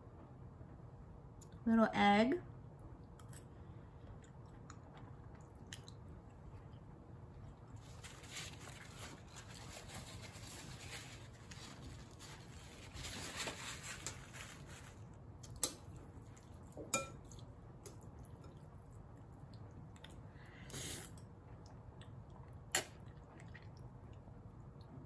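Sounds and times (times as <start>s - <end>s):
wet chewing and mouth sounds: 3.0s - 7.8s, 15.4s - 25.0s.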